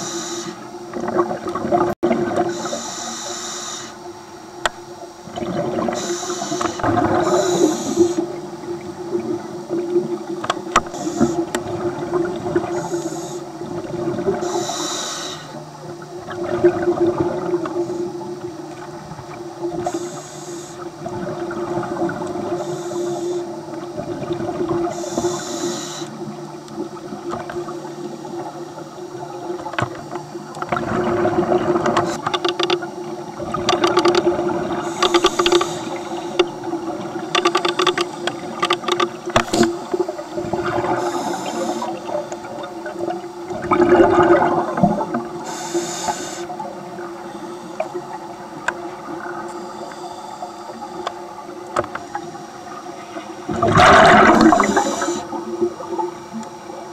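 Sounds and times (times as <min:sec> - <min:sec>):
regulator inhalation hisses: 0:00.0 - 0:00.7, 0:02.5 - 0:04.0, 0:05.9 - 0:08.4, 0:10.9 - 0:11.5, 0:12.7 - 0:13.6, 0:14.3 - 0:15.6, 0:19.8 - 0:20.9, 0:22.5 - 0:23.6, 0:24.8 - 0:26.3, 0:34.8 - 0:36.5, 0:40.9 - 0:42.2, 0:45.4 - 0:46.7, 0:54.4 - 0:55.4
steady hum: 0:00.0 - 0:56.9
bubbling exhalation: 0:53.5 - 0:55.4.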